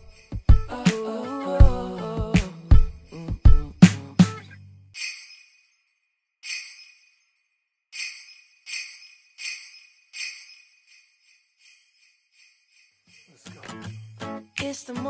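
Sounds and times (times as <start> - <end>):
sleigh bells shaken: 0.0 - 3.8, 5.0 - 15.0.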